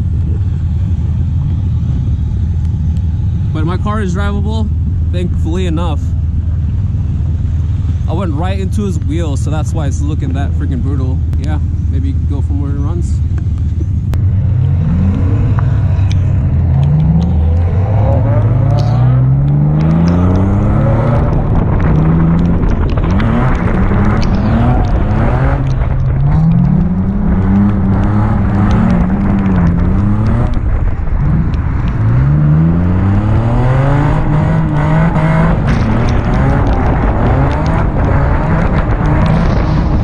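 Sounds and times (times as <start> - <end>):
car engine revving hard: 14.4 - 40.0.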